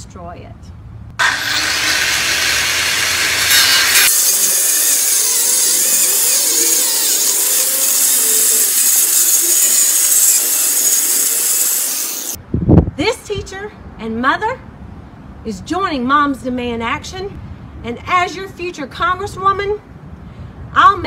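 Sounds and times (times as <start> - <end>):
cutting wheel grinding steel: 1.2 - 12.4.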